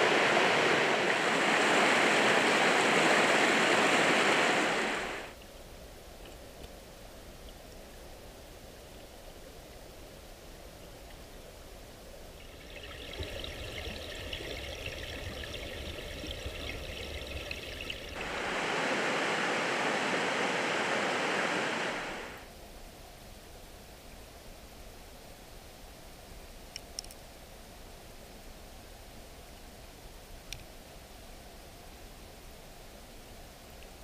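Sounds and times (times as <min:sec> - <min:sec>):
creek water rushing over gravel: 0:00.0 - 0:05.4, 0:12.4 - 0:22.4.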